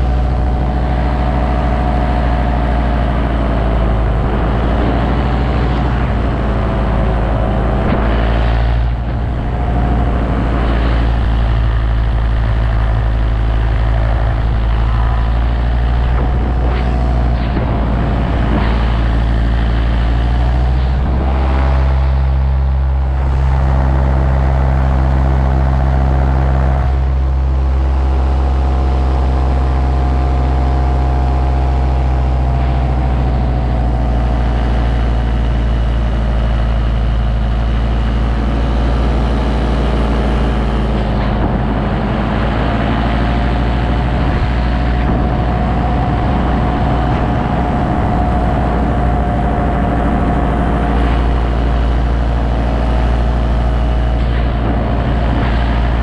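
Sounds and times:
paramotor engine drone: 0.0s - 56.0s.

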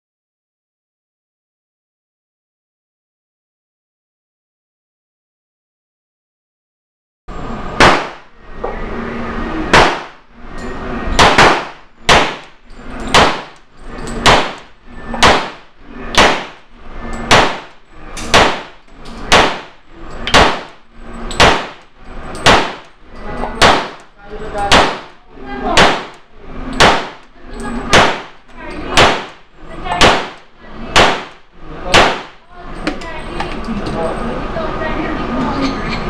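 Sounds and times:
pistol shots echoing indoors: 7.8s - 8.4s, 9.7s - 10.2s, 11.1s - 32.5s.

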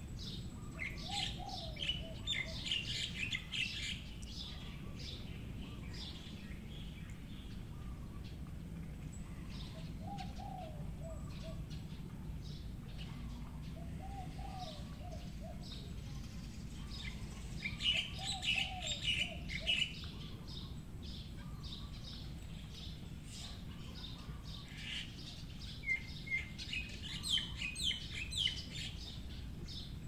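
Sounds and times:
birds chirping: 0.0s - 30.0s
low arching bird call: 16.8s - 20.8s.

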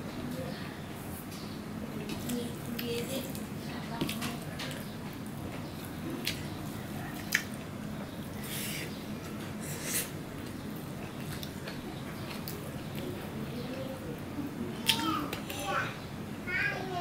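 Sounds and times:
chewing with wet lip smacks: 7.1s - 7.7s, 10.3s - 13.9s.

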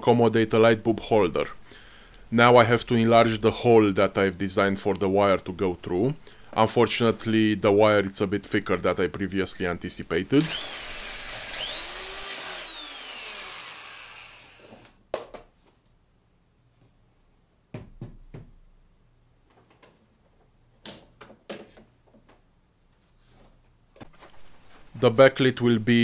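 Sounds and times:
electric drill whining: 10.4s - 15.0s.

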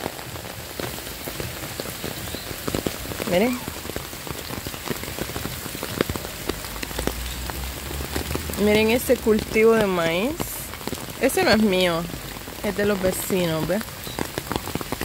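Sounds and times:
rain drops hitting umbrella: 0.0s - 15.0s
rain hissing on ground: 0.0s - 15.0s.

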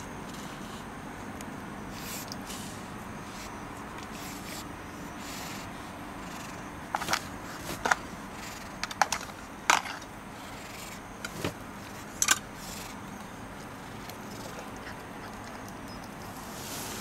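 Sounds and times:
sharp clicks and crackles: 6.4s - 10.1s.

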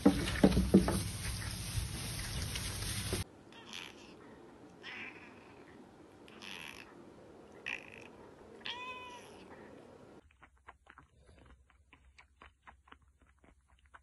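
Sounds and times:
cat meowing: 3.5s - 9.6s
kitten sucking and chewing: 9.5s - 14.0s.

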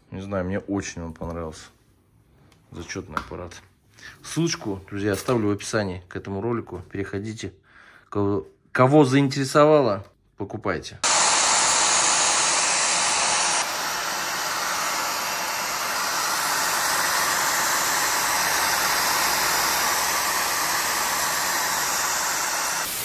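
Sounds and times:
vacuum cleaner whooshing hiss: 11.0s - 23.0s.

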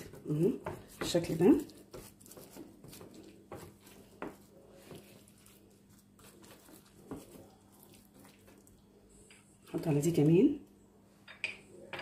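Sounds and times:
hands rubbing meat: 0.0s - 8.8s.

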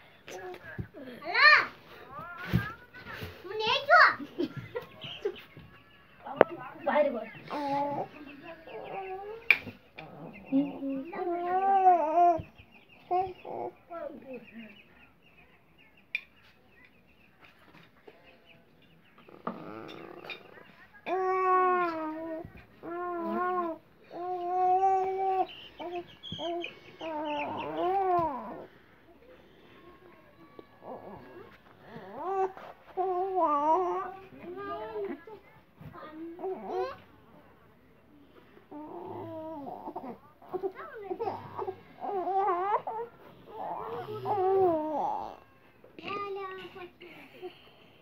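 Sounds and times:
toddler whining: 11.1s - 12.5s, 21.1s - 28.7s, 36.4s - 37.0s, 38.7s - 45.6s.

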